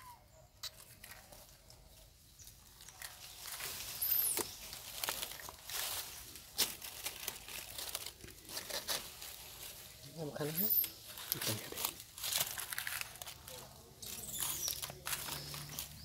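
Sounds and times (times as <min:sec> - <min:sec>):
crackling crinkling rustle: 0:00.3 - 0:16.0.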